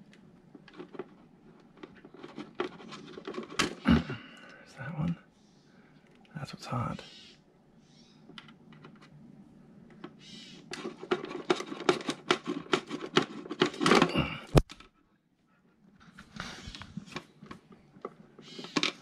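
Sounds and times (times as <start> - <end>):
small plastic clicks and rattles: 0.0 - 3.8, 9.9 - 15.0.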